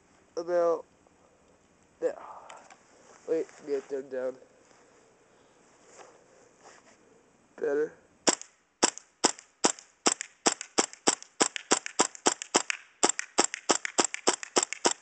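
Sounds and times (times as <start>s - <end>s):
airsoft rifle shots popping: 8.2s - 15.0s.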